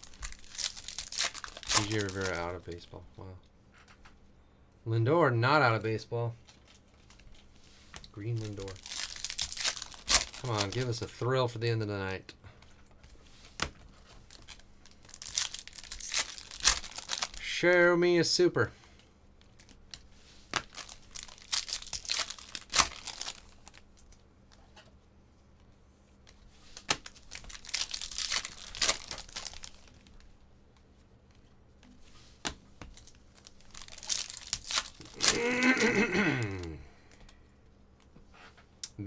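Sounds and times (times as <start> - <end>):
foil wrappers crinkling and tearing: 0.0 - 2.8, 8.1 - 11.2, 13.6 - 17.6, 19.4 - 24.2, 26.7 - 30.3, 32.9 - 36.8.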